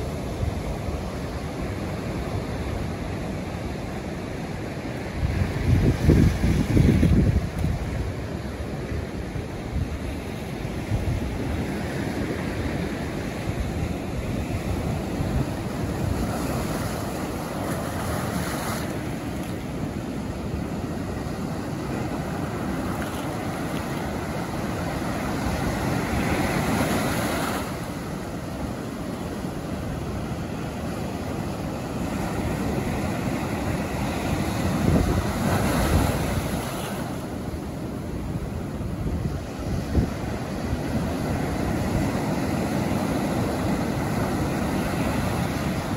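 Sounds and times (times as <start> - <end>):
ocean surf breaking: 0.0 - 45.9.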